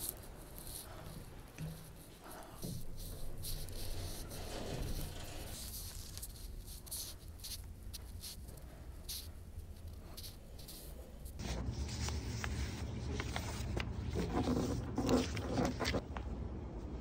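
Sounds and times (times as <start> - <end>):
phone rubbing and rustling: 0.0 - 8.5.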